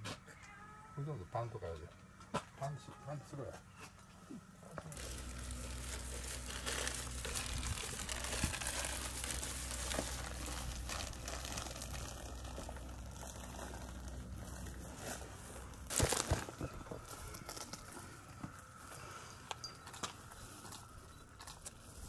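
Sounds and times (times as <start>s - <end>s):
low steady hum: 0.0s - 22.0s
plastic bag rustling: 4.9s - 22.0s.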